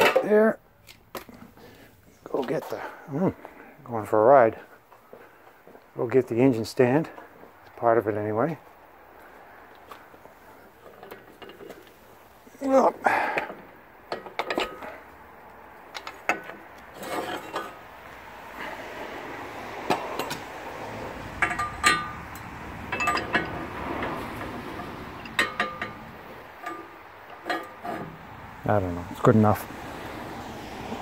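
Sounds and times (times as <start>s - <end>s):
metal parts clinking and clanking: 10.6s - 12.6s, 13.2s - 15.2s, 15.9s - 17.8s, 21.3s - 28.2s.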